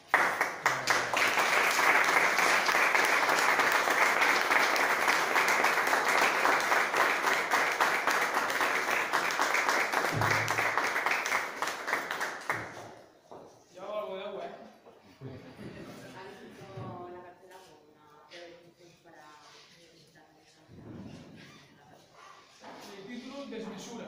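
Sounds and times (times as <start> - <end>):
people applauding: 0.0 - 13.0.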